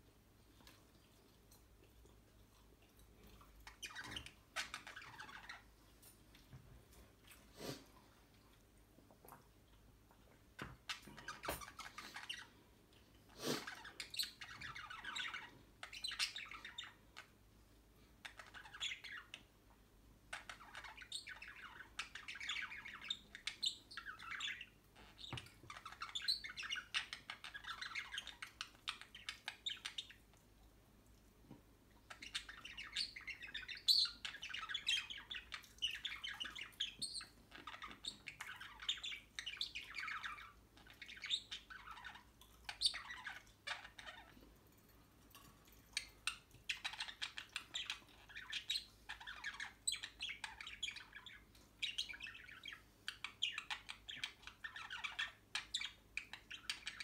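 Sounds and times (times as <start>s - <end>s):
budgerigars warbling and chirping: 3.6s - 5.8s, 10.6s - 12.6s, 13.4s - 17.4s, 18.2s - 19.5s, 20.3s - 30.3s, 32.1s - 44.4s, 46.0s - 57.0s.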